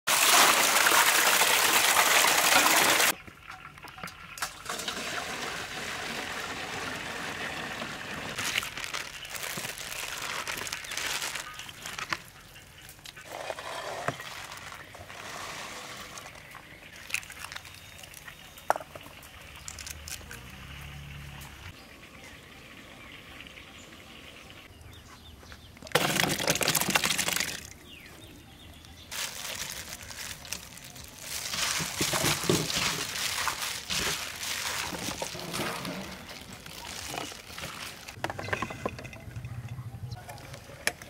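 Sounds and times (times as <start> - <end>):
water pouring into metal basin: 0.1 - 8.4, 26.0 - 27.7
water trickling and splashing: 0.1 - 13.2, 14.1 - 24.6, 29.1 - 39.2
handling of wet food: 8.4 - 12.4, 13.1 - 18.7, 28.8 - 38.2.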